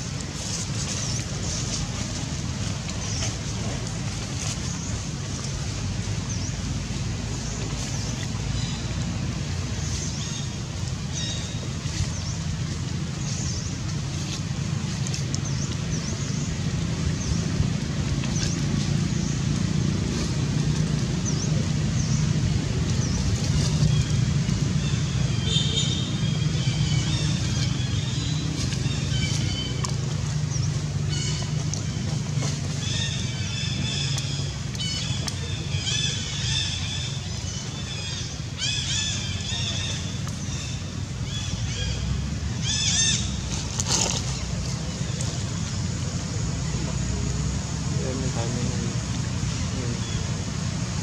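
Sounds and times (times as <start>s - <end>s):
low engine rumble: 0.0s - 51.0s
small birds chirping: 18.2s - 50.4s.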